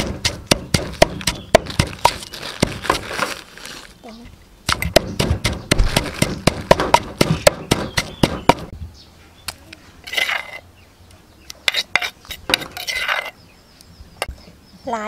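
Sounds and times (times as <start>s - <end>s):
pestle pounding in wooden mortar: 0.0s - 3.2s, 4.7s - 8.7s
metal spoon scraping mortar: 10.0s - 10.6s, 11.6s - 13.4s.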